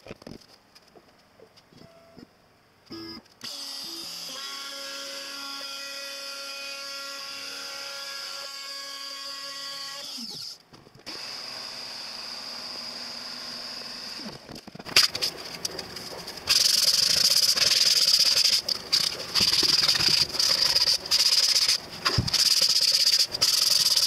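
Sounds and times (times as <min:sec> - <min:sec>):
router whining while milling wood: 0:03.4 - 0:14.5.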